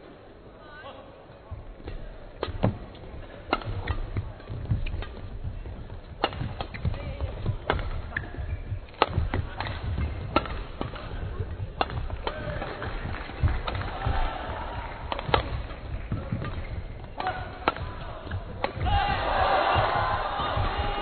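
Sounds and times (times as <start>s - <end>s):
racket hitting shuttlecock: 1.8s - 21.0s
footsteps thudding on court: 3.7s - 17.2s, 17.8s - 21.0s.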